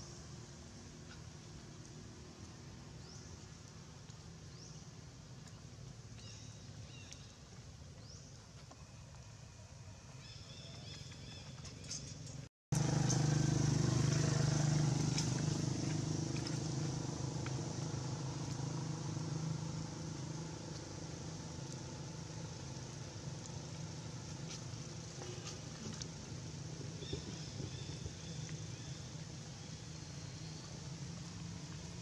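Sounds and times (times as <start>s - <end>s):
engine humming: 10.2s - 32.0s.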